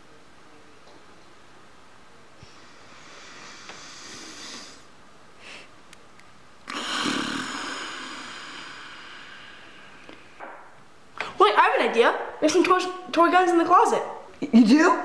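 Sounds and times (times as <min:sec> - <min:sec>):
person sighing: 0:06.7 - 0:10.4.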